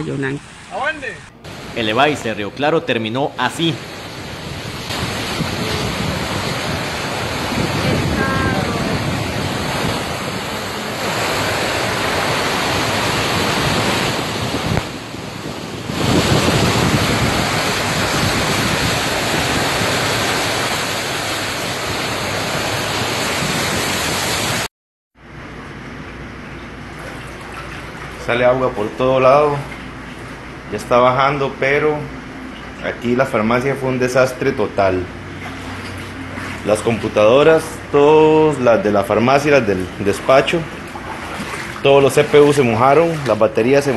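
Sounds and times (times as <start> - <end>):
floodwater rushing through street: 0.0 - 24.7, 26.8 - 43.9
wind buffeting microphone: 3.8 - 24.7.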